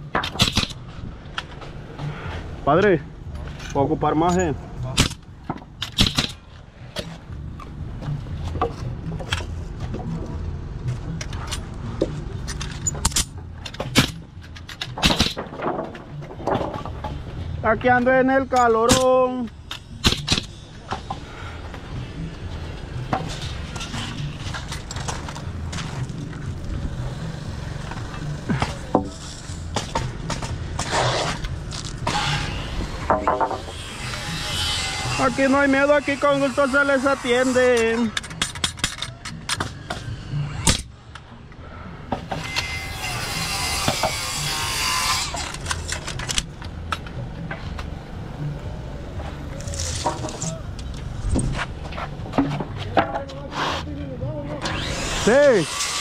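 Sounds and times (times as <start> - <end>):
nail gun firing: 15.0 - 15.4, 20.0 - 20.5
steady low rumble: 19.4 - 34.3.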